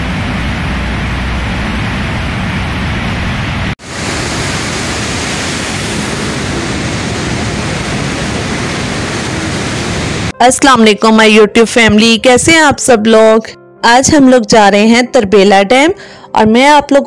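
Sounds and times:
water rushing from spillway: 0:00.0 - 0:10.4.

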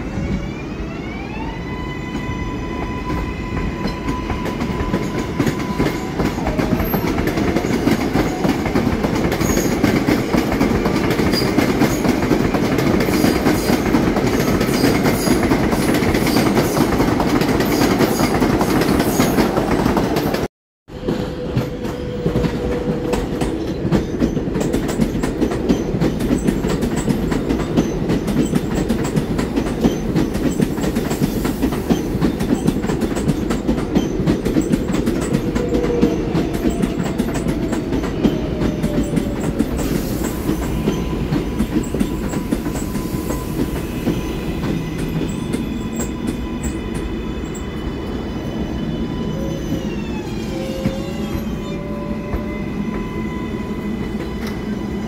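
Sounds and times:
train rumble: 0:02.2 - 0:55.0
train wheels clicking over rail joints: 0:03.6 - 0:47.2.

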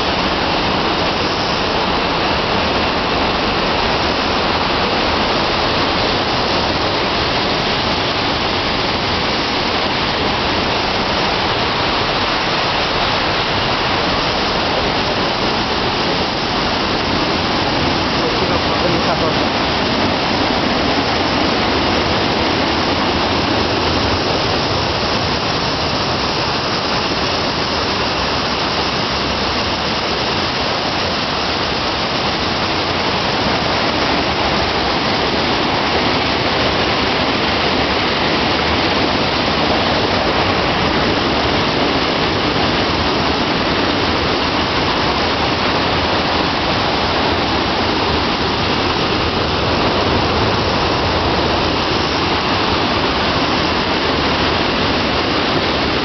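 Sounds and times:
water rushing down spillway: 0:00.0 - 0:56.0.

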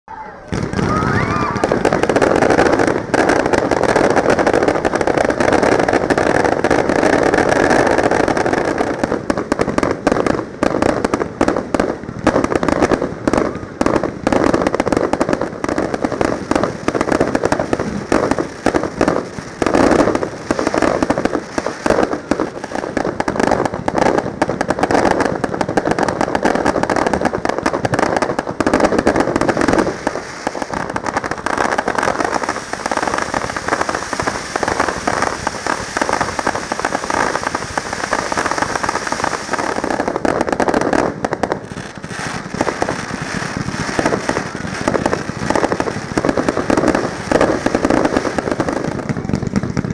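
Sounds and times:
rapid-fire fireworks volley: 0:00.1 - 0:49.9.

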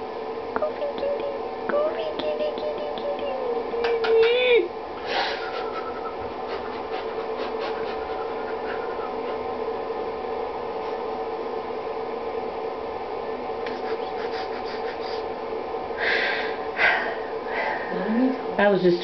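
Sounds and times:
steady hum: 0:00.0 - 0:19.0.

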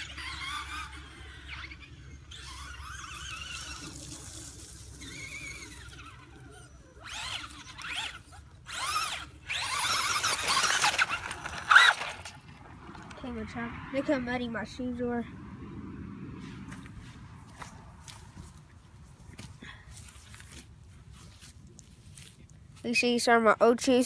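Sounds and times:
radio-controlled car motor whining: 0:00.0 - 0:13.1.

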